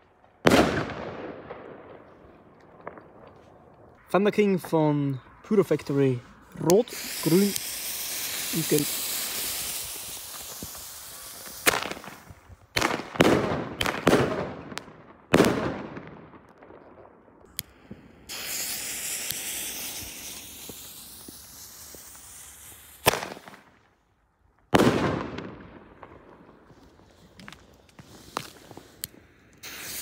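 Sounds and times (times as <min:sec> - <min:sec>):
lit fuse hissing: 0:05.5 - 0:12.4, 0:17.5 - 0:23.6, 0:27.9 - 0:30.0
firecrackers banging: 0:06.6 - 0:16.4, 0:17.6 - 0:23.7.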